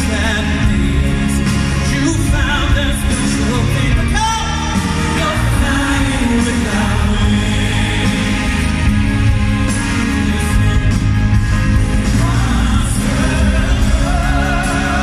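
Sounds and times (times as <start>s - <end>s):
male vocal group singing: 0.0s - 11.1s, 11.8s - 15.0s
band accompaniment: 0.0s - 15.0s.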